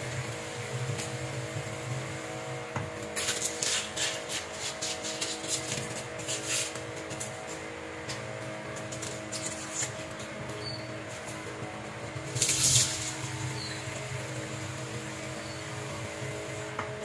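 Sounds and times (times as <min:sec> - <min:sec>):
faint hum: 0:04.3 - 0:17.0.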